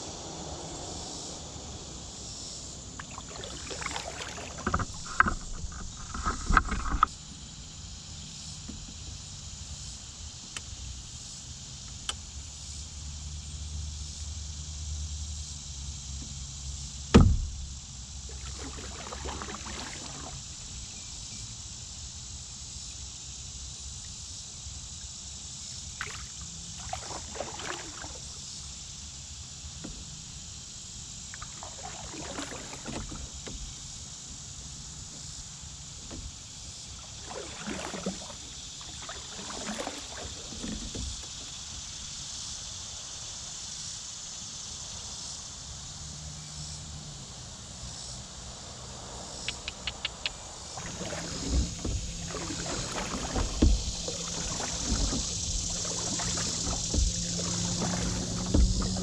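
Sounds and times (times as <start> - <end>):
insects buzzing: 0.0 - 59.0
canoe paddle swishing through water: 0.1 - 7.0, 17.2 - 21.2, 26.0 - 28.5, 31.2 - 42.1, 50.4 - 59.0
sharp knock: 17.1 - 17.6.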